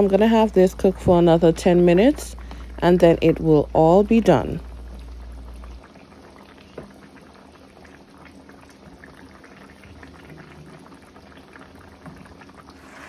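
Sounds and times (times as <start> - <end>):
stew bubbling in a pan: 0.0 - 13.0.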